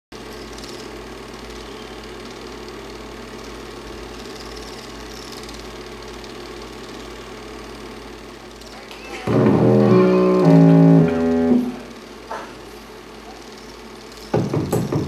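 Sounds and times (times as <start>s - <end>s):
film projector whirring: 0.2s - 15.0s.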